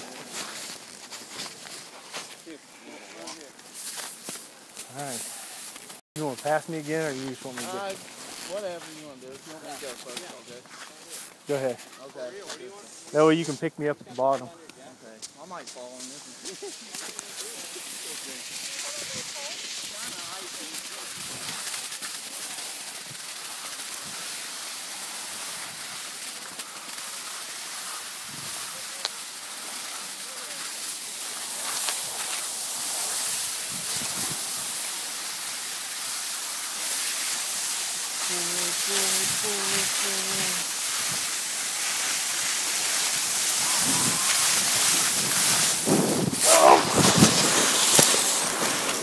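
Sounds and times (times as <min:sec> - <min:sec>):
skis scraping over snow: 0:00.0 - 0:49.0
wind on microphone: 0:28.3 - 0:28.6, 0:33.6 - 0:34.6, 0:43.5 - 0:49.0.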